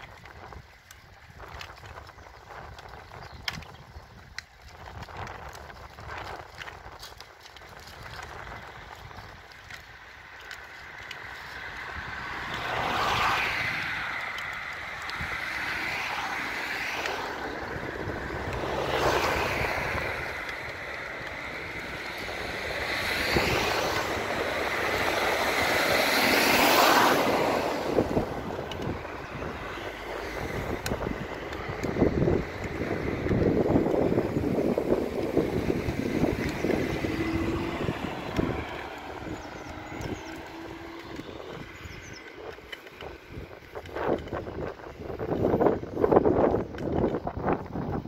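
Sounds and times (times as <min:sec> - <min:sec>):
cars passing by: 0:00.0 - 0:48.0.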